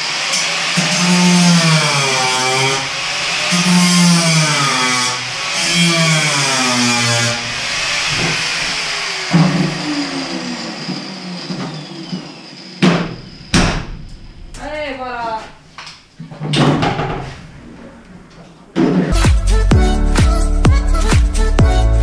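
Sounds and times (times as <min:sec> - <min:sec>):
angle grinder cutting sheet metal: 0:00.0 - 0:13.5.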